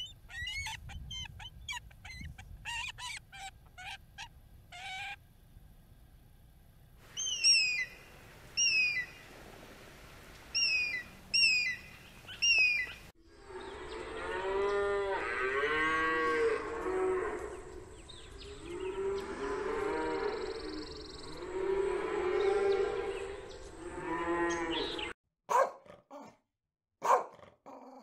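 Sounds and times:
eagle piping calls: 0.0s - 5.2s, 7.1s - 9.3s, 10.5s - 13.1s
cattle mooing: 13.4s - 17.8s, 18.4s - 20.8s, 21.4s - 25.1s.

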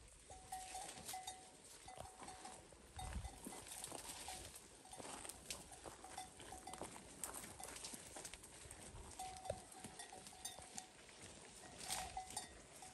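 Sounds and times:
goat bell clinking: 0.0s - 12.9s.

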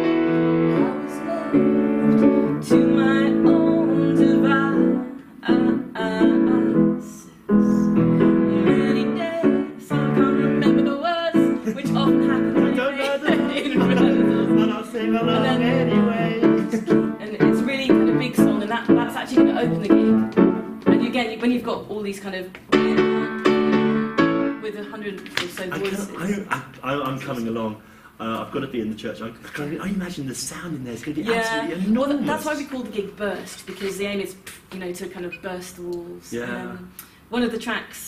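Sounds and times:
person singing: 0.0s - 18.5s
grand piano piece: 0.0s - 21.9s, 22.6s - 26.4s.

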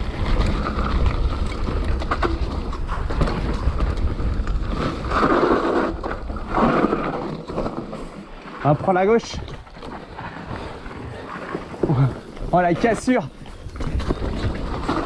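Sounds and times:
bike rattling and knocking: 0.0s - 15.0s
wind buffeting microphone: 9.2s - 15.0s.

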